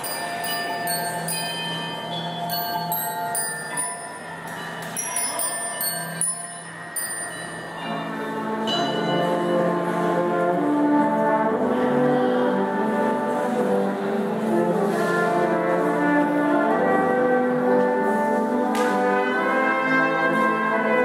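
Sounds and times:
ringing mallet percussion: 0:00.0 - 0:09.7
brass playing: 0:14.4 - 0:21.0.

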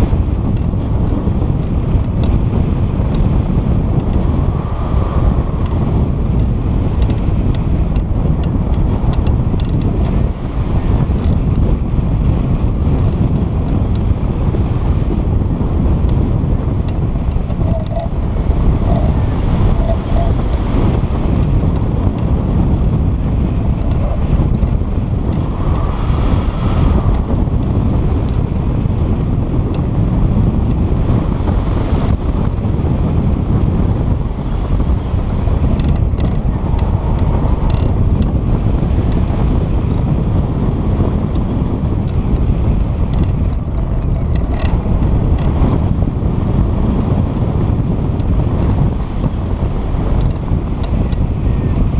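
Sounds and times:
wind buffeting microphone: 0:00.0 - 0:51.9
faint ticks: 0:16.8 - 0:18.1.

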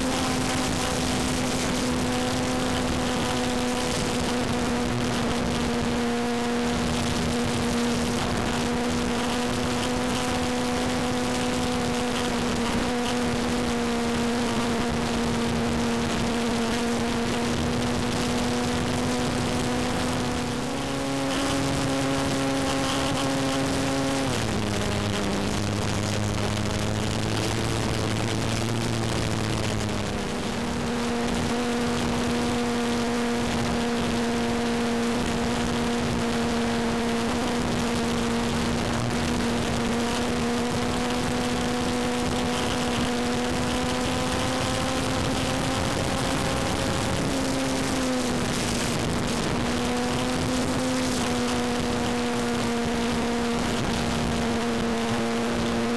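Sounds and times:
wind rush: 0:00.0 - 0:55.5.

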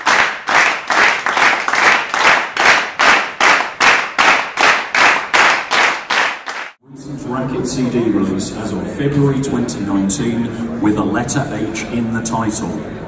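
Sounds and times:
audience clapping in time: 0:00.0 - 0:06.8.

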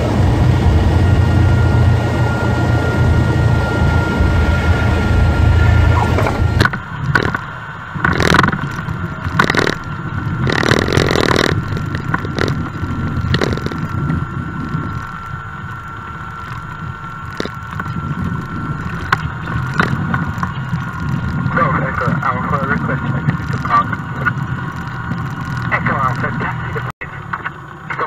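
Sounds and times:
plane engine idling: 0:00.0 - 0:28.0
steady thin whine: 0:00.0 - 0:28.0
bumps and rattles: 0:06.0 - 0:15.4, 0:16.2 - 0:26.9.

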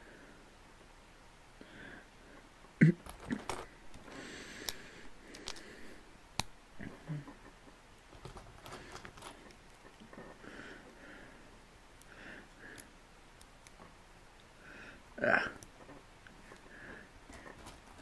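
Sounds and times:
loose pieces rustling: 0:03.0 - 0:05.8, 0:08.0 - 0:10.3, 0:17.3 - 0:18.0
plastic bricks clicking: 0:04.6 - 0:05.7.

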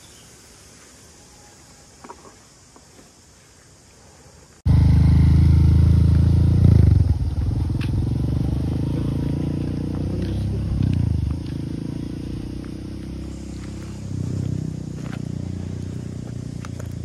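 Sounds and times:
motorcycle engine running: 0:04.7 - 0:17.0.

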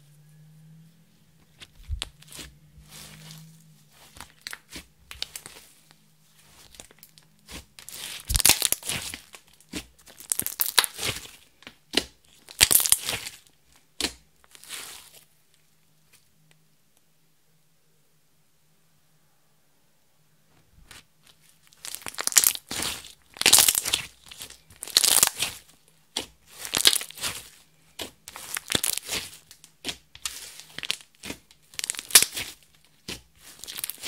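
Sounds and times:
sticky slime crackles and pops: 0:01.6 - 0:03.4, 0:04.0 - 0:05.7, 0:06.5 - 0:15.2, 0:21.6 - 0:34.0.

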